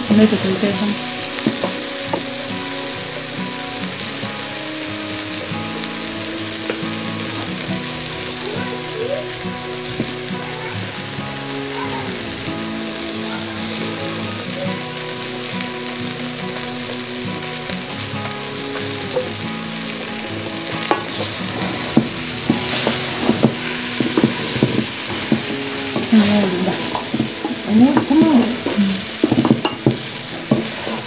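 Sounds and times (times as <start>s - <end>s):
chicken sizzling in a pan: 0.0s - 31.0s
wooden spoon scraping a pan: 20.8s - 31.0s.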